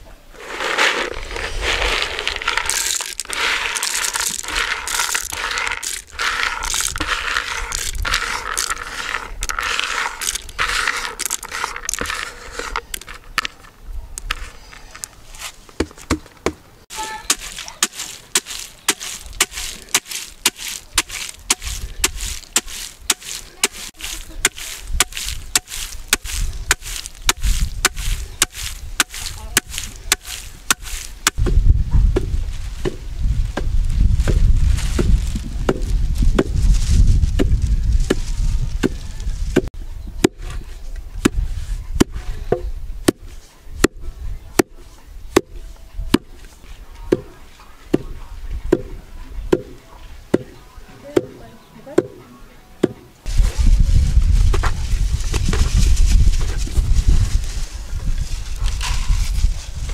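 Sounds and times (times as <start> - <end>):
dry scraping rattle: 0.4 - 15.6, 16.9 - 31.4, 58.2 - 59.9
pestle pounding in wooden mortar: 1.9 - 13.1, 15.8 - 31.6.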